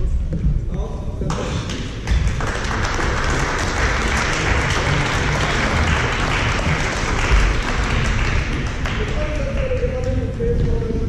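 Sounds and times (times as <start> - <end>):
spectators applauding: 2.1 - 10.2.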